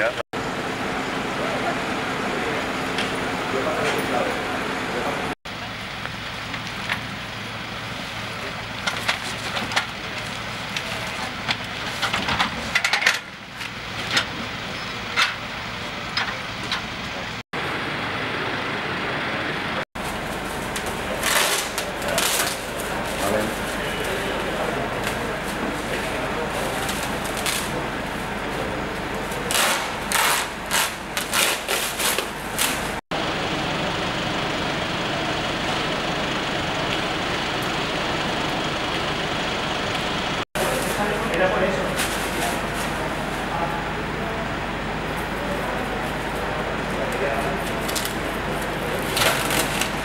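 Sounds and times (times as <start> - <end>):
vehicle engine idling: 0.0 - 50.0.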